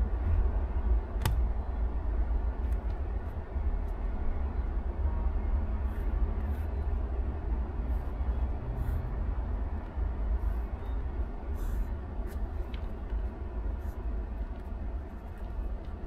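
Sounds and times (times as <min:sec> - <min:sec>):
steady low rumble: 0:00.0 - 0:16.0
pen scratching on paper: 0:05.8 - 0:07.0, 0:07.9 - 0:09.2, 0:11.5 - 0:12.8.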